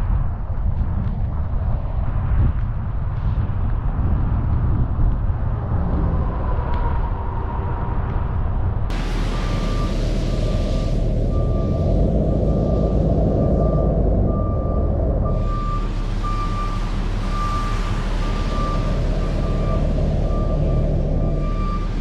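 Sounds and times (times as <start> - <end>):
diesel engine rumble: 0.0 - 22.0
back-up alarm beeping: 8.9 - 22.0.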